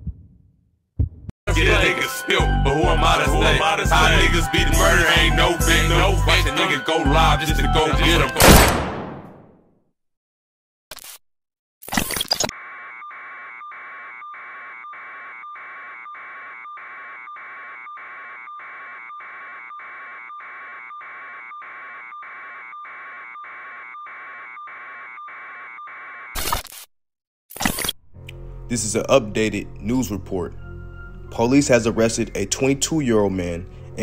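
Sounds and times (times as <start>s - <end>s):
electronic alarm beeping: 12.0s - 26.6s.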